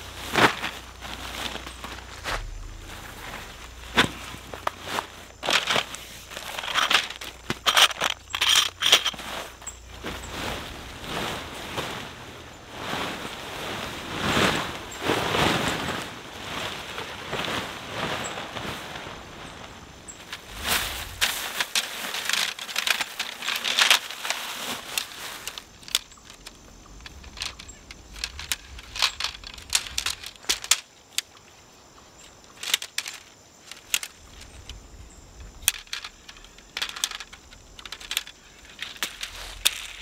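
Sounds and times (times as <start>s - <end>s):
tent poles clicking together: 0.0s - 10.3s, 20.2s - 40.0s.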